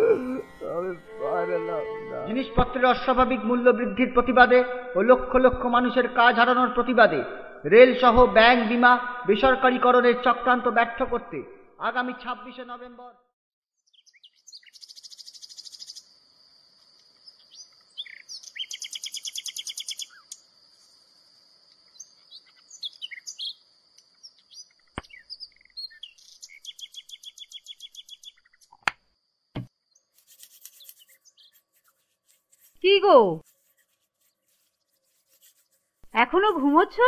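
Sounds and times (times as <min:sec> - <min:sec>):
birds chirping and trilling: 0:13.8 - 0:16.2, 0:17.1 - 0:28.9, 0:29.8 - 0:32.1.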